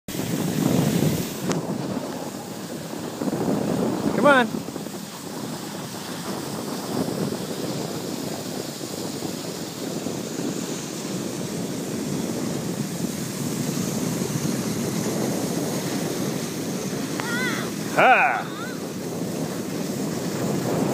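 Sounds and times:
wind on microphone: 0:00.1 - 0:20.9
skis sliding over snow: 0:04.8 - 0:18.0, 0:18.7 - 0:20.9.

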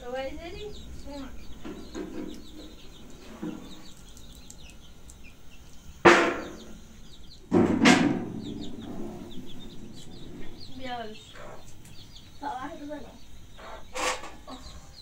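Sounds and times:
faint bird chirps: 0:00.0 - 0:07.5, 0:08.2 - 0:15.0
loud bangs: 0:06.0 - 0:06.9, 0:07.5 - 0:11.2.

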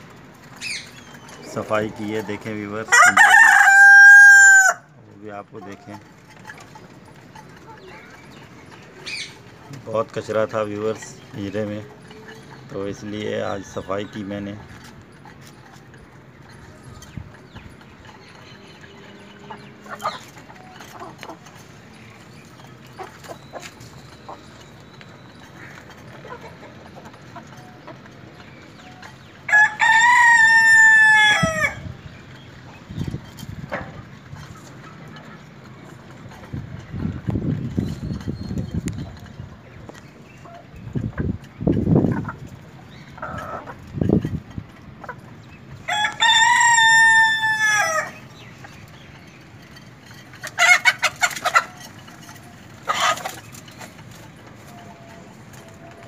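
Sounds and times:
chickens clucking: 0:00.0 - 0:56.0
rooster crowing: 0:02.9 - 0:04.9, 0:29.5 - 0:31.8, 0:45.9 - 0:48.2.

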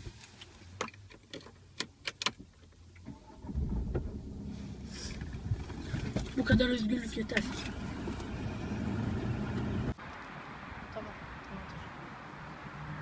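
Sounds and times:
clicks and taps in car cabin: 0:00.8 - 0:02.8
car engine running: 0:03.5 - 0:10.0.

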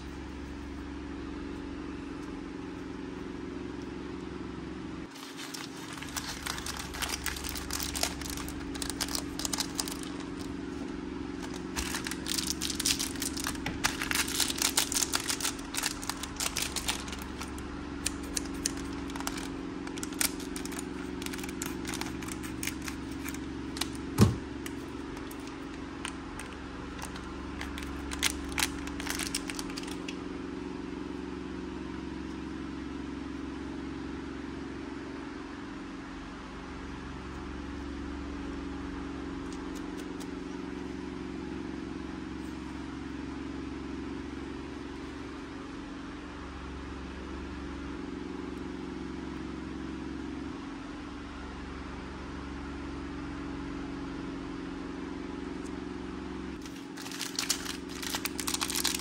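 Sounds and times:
steady low hum: 0:00.0 - 0:59.0
foil crinkling and tearing: 0:05.1 - 0:10.5, 0:11.4 - 0:30.2, 0:56.6 - 0:59.0.

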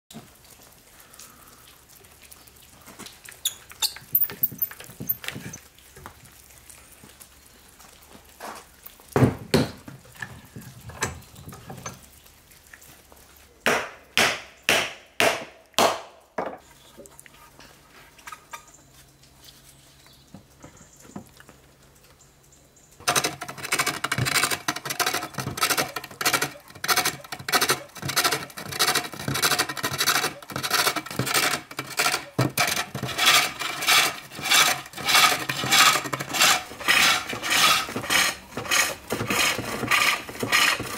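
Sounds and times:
sharp wooden knocks: 0:09.2 - 0:10.0, 0:13.7 - 0:16.6, 0:23.0 - 0:40.9
hook tool scraping wood on lathe: 0:23.0 - 0:40.9.

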